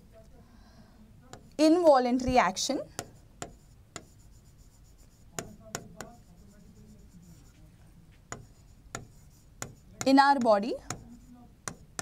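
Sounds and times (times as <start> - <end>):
chalk tapping on blackboard: 1.3 - 12.0
chalk scraping on blackboard: 3.0 - 12.0.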